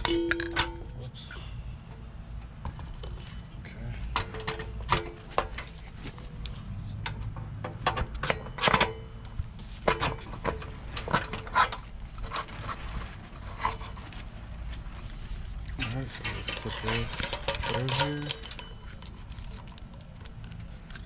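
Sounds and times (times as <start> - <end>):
metal scraping and clinking: 0.0 - 1.1, 4.1 - 14.3, 15.0 - 21.0.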